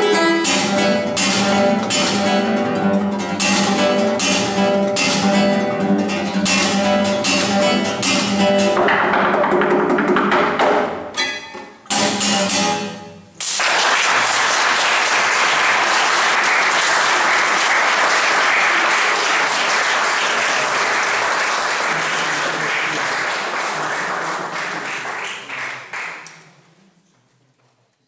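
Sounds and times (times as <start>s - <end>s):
audience applauding: 13.4s - 26.5s.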